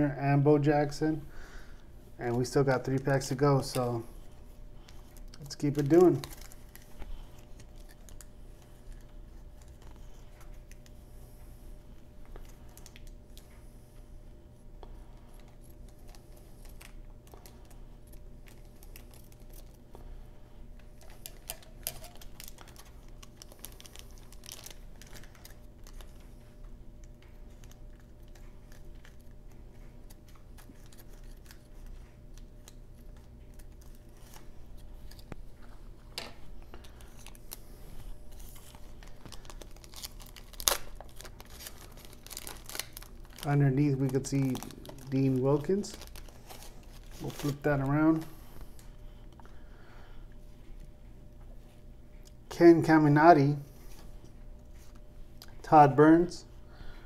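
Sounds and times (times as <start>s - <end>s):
paper wrapper crinkling: 4.8s - 11.0s, 15.1s - 20.1s, 20.8s - 48.9s
scissors snipping paper: 30.1s - 34.2s.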